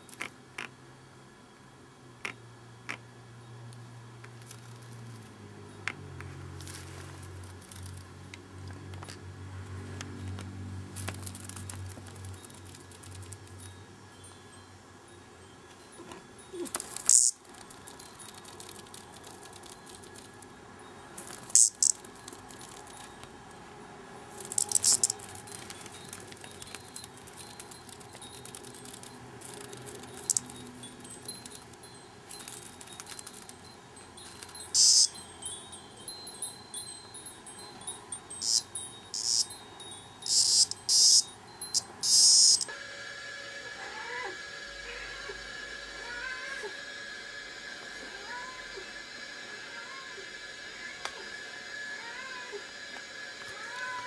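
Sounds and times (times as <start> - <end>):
cicada buzzing: 15.8 - 20.3, 21.3 - 23.2, 24.3 - 33.5, 34.1 - 42.8.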